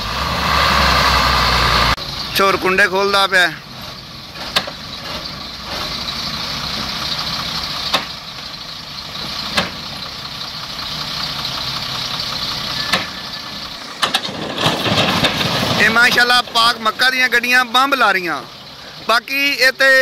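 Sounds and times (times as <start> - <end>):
diesel truck engine idling: 0.0 - 20.0.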